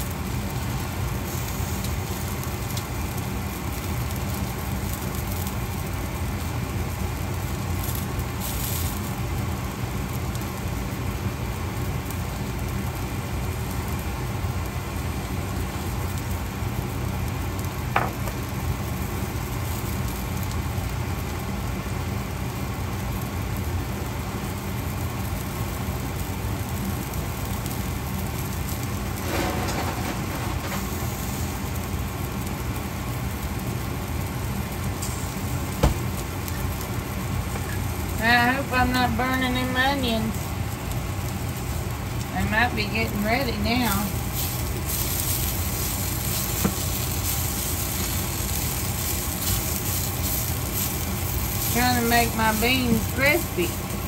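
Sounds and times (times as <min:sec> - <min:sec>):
steady low hum: 0:00.0 - 0:54.0
vegetables sizzling in a pan: 0:00.0 - 0:54.0.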